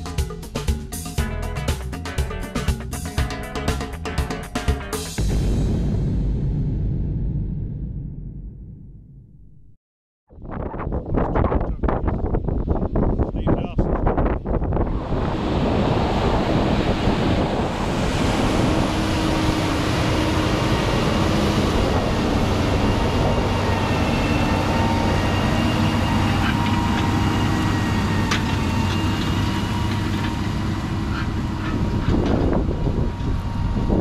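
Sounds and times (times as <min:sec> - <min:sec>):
wind on microphone: 0:10.3 - 0:29.9, 0:31.0 - 0:34.0
tractor engine under load: 0:25.5 - 0:33.6.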